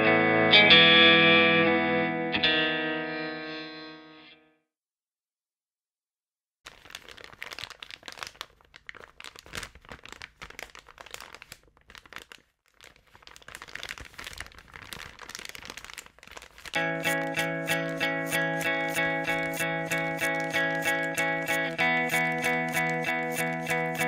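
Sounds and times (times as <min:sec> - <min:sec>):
music with sustained notes: 0:16.8 - 0:24.0.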